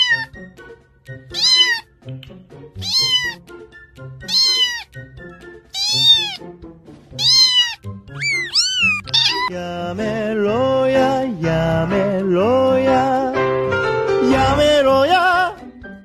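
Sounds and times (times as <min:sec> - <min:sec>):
cat meowing: 0:00.0 - 0:00.3, 0:01.3 - 0:01.9, 0:02.8 - 0:03.4, 0:04.2 - 0:05.0, 0:05.7 - 0:06.4, 0:07.2 - 0:09.5
background music: 0:00.0 - 0:16.0.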